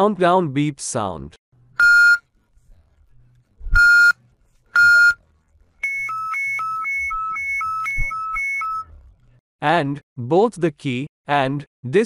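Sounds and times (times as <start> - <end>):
high-low two-tone alarm: 5.8 - 8.9
long beep: 5.8 - 8.9.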